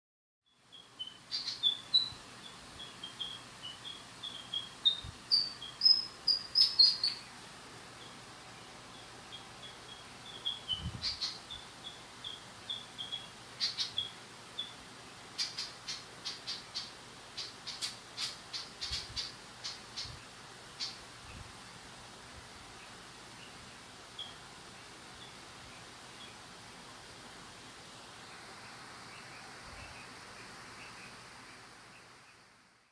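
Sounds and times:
sharp bird calls: 0.5s - 21.4s, 28.4s - 32.5s
birds singing: 0.5s - 21.8s, 22.6s - 26.9s, 27.8s - 32.6s.

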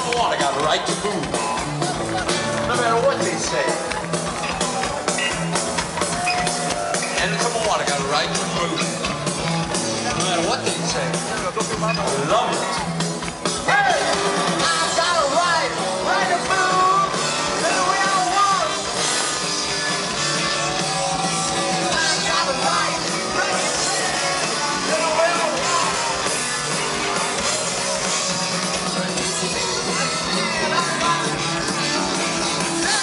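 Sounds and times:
live punk rock band: 0.0s - 33.0s
person singing: 13.8s - 18.8s, 19.7s - 33.0s.

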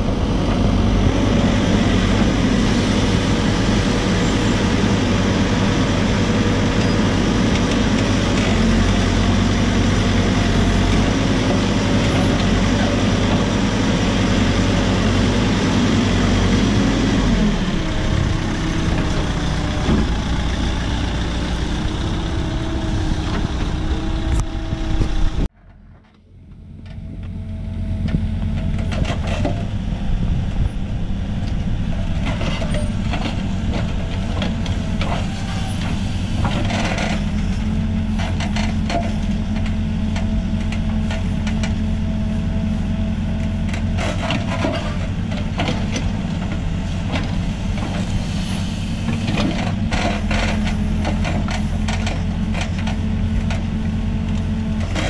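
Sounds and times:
diesel engine running under load: 0.0s - 55.0s.

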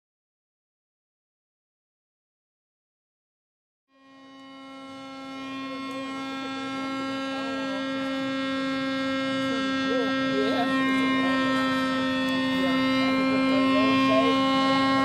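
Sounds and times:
steady pitched hum: 4.0s - 15.0s
faint voices: 5.0s - 15.0s.

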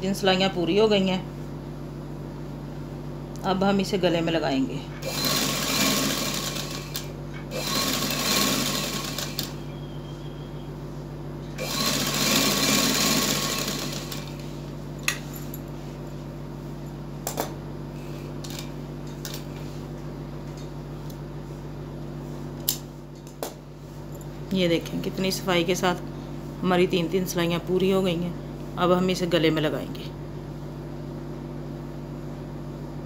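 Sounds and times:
sewing machine stitching: 5.0s - 9.6s, 11.6s - 14.4s.

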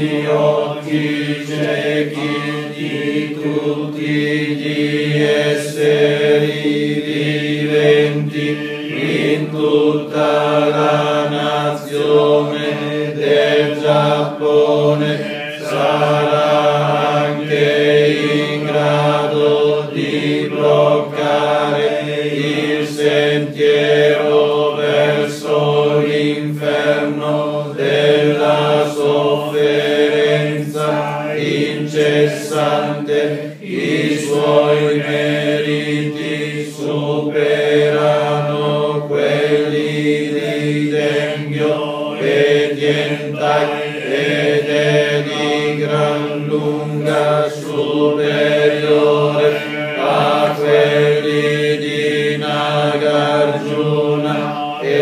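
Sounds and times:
congregation chanting in monotone: 0.0s - 55.0s.

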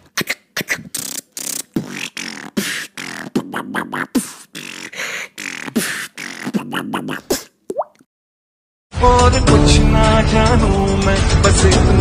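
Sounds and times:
beatboxing: 0.0s - 7.7s.

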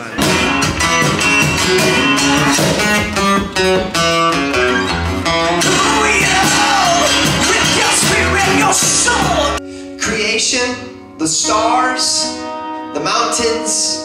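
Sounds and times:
cajon beat: 0.0s - 9.6s
acoustic guitars strumming: 0.0s - 14.0s
man singing: 5.6s - 14.0s.

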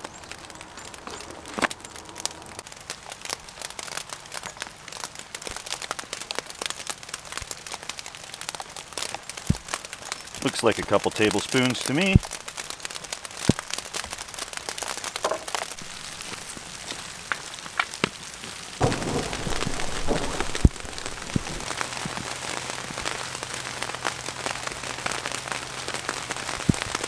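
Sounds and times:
rain falling: 0.0s - 27.0s.

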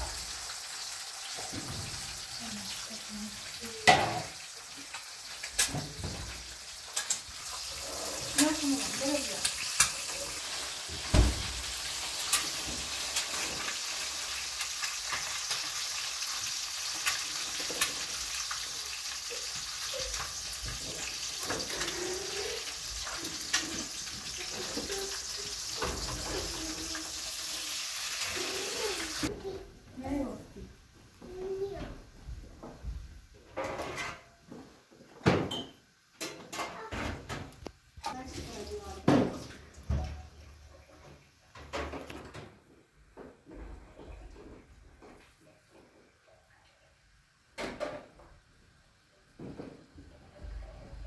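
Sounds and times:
eggs sizzling in a pan: 0.0s - 31.9s, 37.6s - 41.8s
kitchen utensils clattering: 33.5s - 37.4s.

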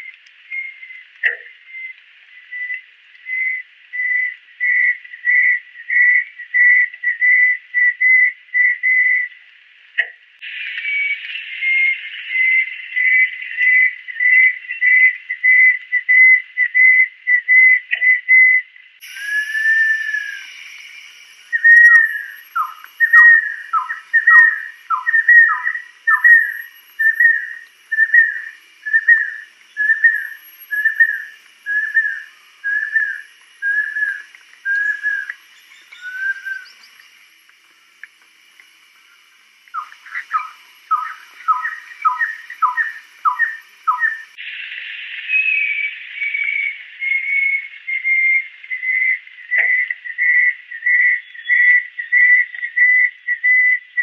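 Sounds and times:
bird whistling calls: 0.0s - 9.3s, 10.8s - 37.2s, 39.7s - 44.6s, 45.2s - 54.0s.

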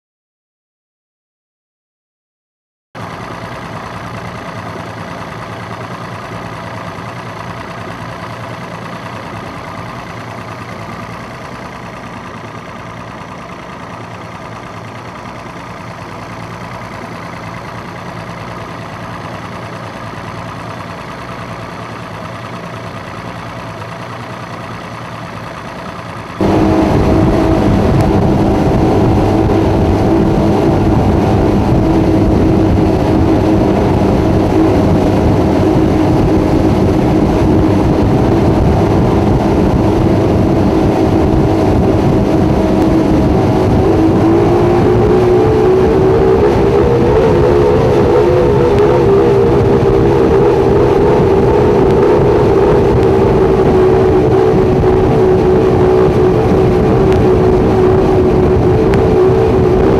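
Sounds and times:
outboard engines: 3.0s - 59.9s
rushing water and wind: 26.4s - 59.9s.

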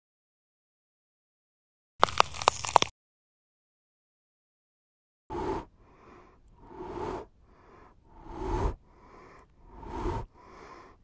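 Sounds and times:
heavy rasping breathing: 5.3s - 11.0s.

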